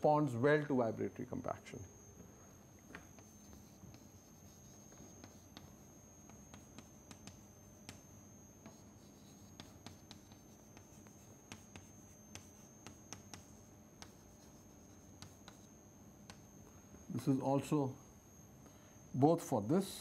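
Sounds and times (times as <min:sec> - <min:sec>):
chalk tapping and scratching: 0:03.1 - 0:08.0, 0:08.6 - 0:16.5.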